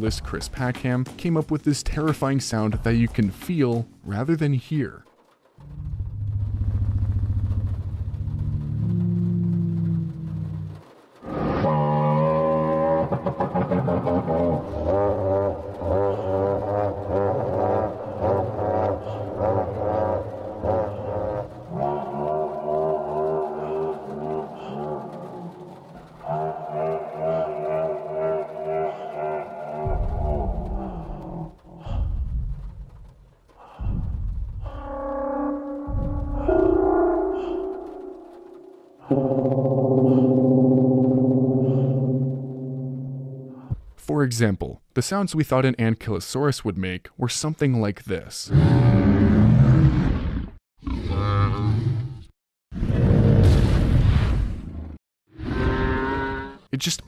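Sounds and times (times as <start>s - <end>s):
deep rumbling creature call: 5.6s - 43.8s, 48.5s - 53.7s
low droning tone: 34.7s - 43.7s.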